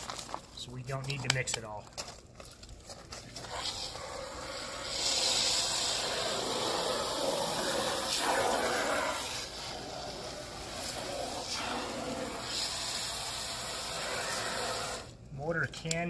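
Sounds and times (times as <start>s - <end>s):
water spraying from hose: 3.5s - 15.1s.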